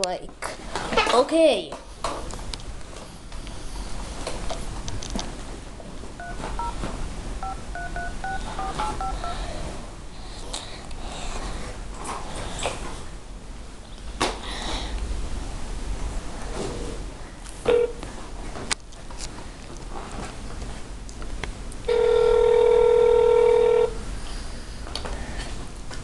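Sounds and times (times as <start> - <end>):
touch-tone keypad beeps: 6.2 - 6.8, 7.4 - 9.4
phone tapping clicks: 7.4 - 9.3.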